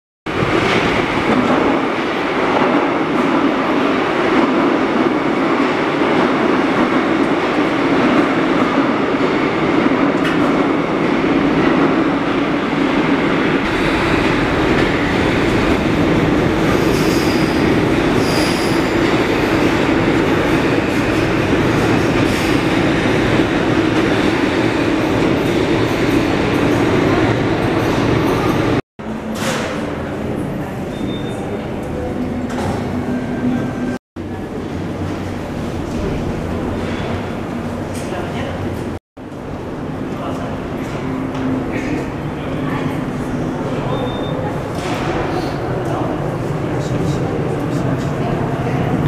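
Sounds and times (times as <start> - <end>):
metro train rumble: 0.3 - 49.0
steel wheel squeal: 16.8 - 17.6, 18.2 - 18.9.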